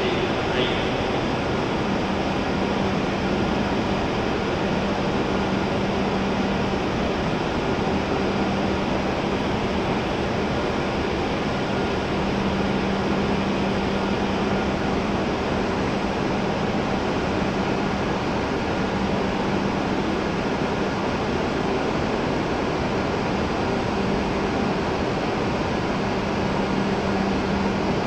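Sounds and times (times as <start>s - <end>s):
low hum: 0.0s - 18.1s
train fans whirring and hissing: 0.0s - 28.0s.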